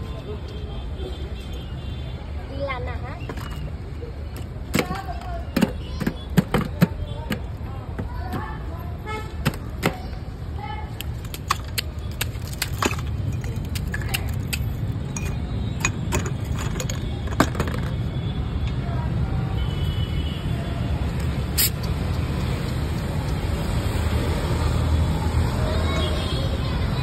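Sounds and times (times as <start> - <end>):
road traffic rumble: 0.0 - 27.0
pestle cracking ice: 11.0 - 17.5.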